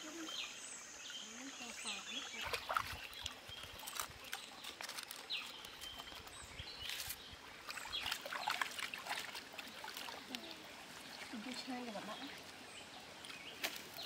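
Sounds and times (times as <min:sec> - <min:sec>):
stream water trickling: 0:00.0 - 0:14.0
hands splashing in water: 0:02.3 - 0:06.2, 0:07.0 - 0:10.6.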